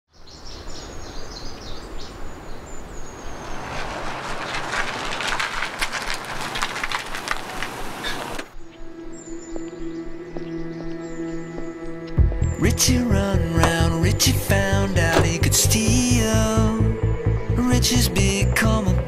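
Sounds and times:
birds chirping: 0.1s - 4.7s, 7.4s - 19.0s
steady outdoor rumble: 2.6s - 19.0s
car driving past: 2.9s - 8.5s
tyre noise hiss and crackles: 3.3s - 8.6s.

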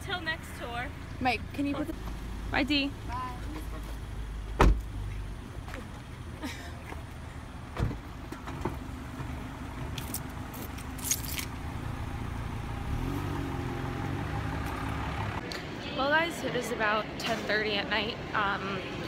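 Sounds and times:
low rumble of car and street: 0.0s - 19.0s
car door shutting: 4.5s - 5.0s, 7.7s - 8.8s.

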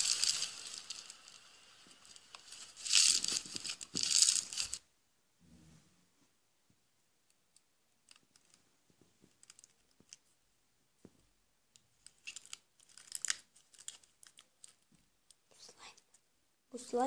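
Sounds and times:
slime clicks and crackles: 12.0s - 14.9s.

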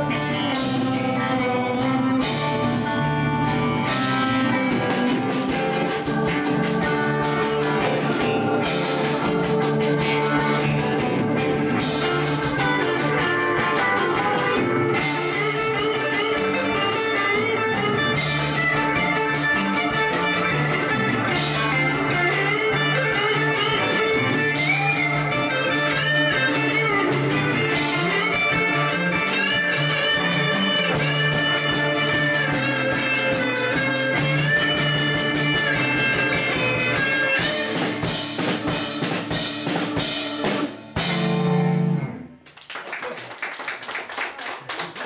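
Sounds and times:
live rock band playing: 0.0s - 42.5s
audience clapping: 42.3s - 45.0s.

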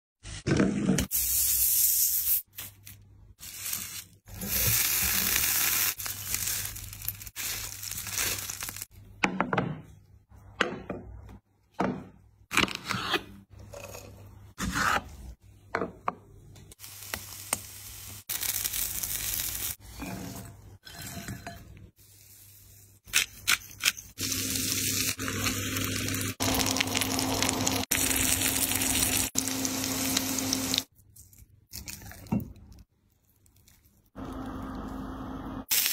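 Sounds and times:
aluminium foil crinkling: 3.4s - 8.9s
meat sizzling: 3.4s - 8.9s, 16.8s - 19.8s, 24.2s - 30.9s.

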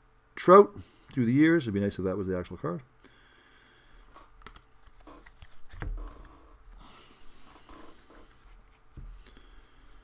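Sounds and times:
cards sliding and rustling: 4.0s - 10.0s.

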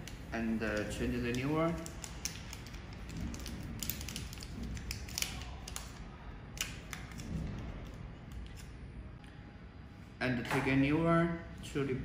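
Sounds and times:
packet crinkling and tearing: 0.7s - 7.4s.

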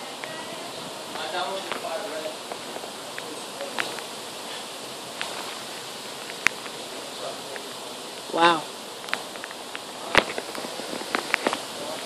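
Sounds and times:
wind rustling tree leaves: 0.0s - 12.0s.

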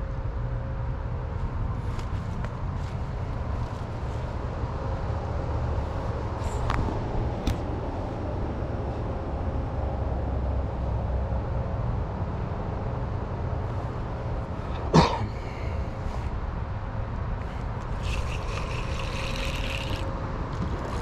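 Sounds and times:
low outdoor rumble: 0.0s - 21.0s
person coughing: 14.8s - 15.8s.

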